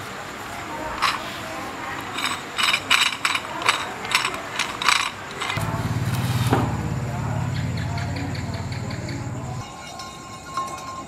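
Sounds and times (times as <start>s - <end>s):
ratchet wrench clicking: 2.0s - 5.6s
low hum: 5.5s - 9.6s.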